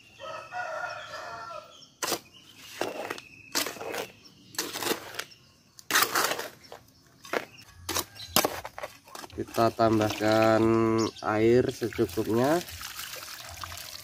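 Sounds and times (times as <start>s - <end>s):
trowel scraping dry cement mix: 2.0s - 11.1s.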